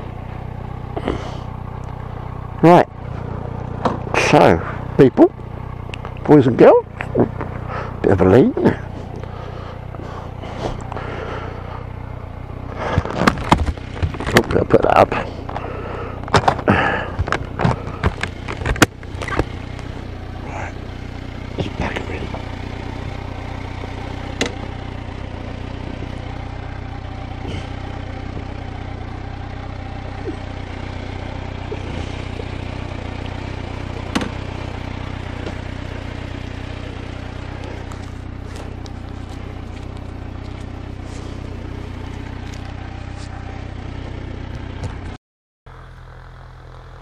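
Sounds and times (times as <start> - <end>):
motorcycle engine idling: 0.0 - 47.0
sharp clicks: 5.9 - 6.3.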